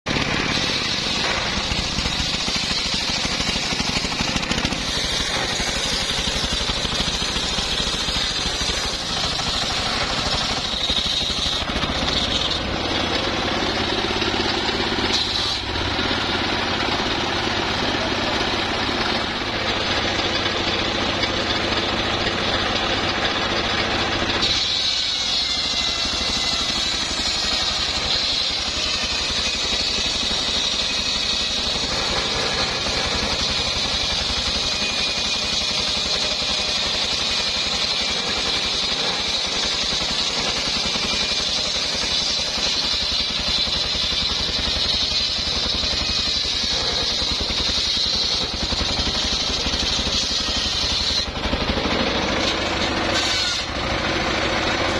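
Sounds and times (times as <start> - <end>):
engine throbbing: 0.1 - 31.1
circular saw blade whining through wood: 0.1 - 54.9.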